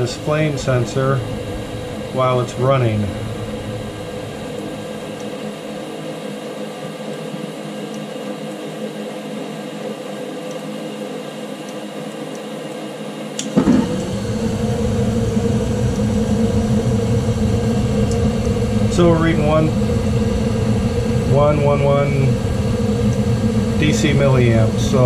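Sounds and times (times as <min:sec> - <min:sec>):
gas burners lighting whoosh: 0:00.0 - 0:06.0, 0:13.4 - 0:25.0
low rumble of burning gas: 0:00.0 - 0:11.2, 0:13.2 - 0:25.0
furnace motor hum: 0:00.0 - 0:25.0.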